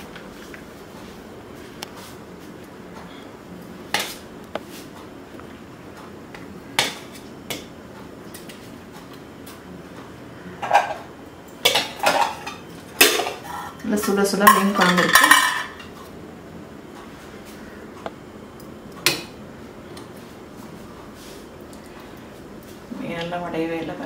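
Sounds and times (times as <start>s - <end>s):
metal spoon clinking on pots: 14.0s - 16.0s.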